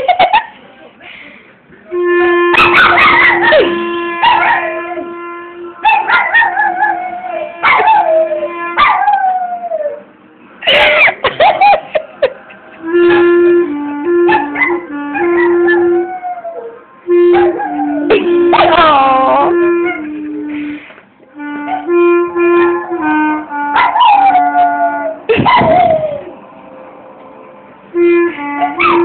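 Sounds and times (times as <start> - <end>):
clarinet playing: 1.8 - 27.0, 27.8 - 29.0
dog howling and yipping: 2.5 - 5.0, 5.8 - 10.0, 14.2 - 19.0, 23.8 - 26.4, 28.6 - 29.0.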